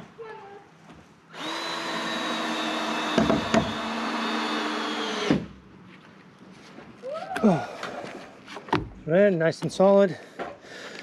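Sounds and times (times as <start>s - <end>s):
cordless drill driving a screw: 1.3s - 5.4s.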